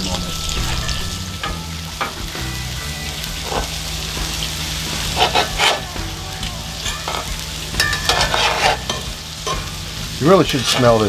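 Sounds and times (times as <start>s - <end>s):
meat patties sizzling: 0.0s - 11.0s
metal spatula scraping a pot: 3.4s - 3.8s, 5.0s - 5.9s, 6.8s - 9.7s, 10.6s - 11.0s.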